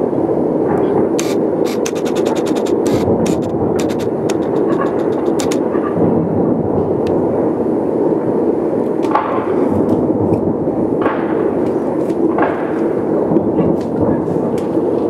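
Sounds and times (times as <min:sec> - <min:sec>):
fireworks rumbling: 0:00.0 - 0:15.0
sharp firework bangs: 0:01.3 - 0:06.2.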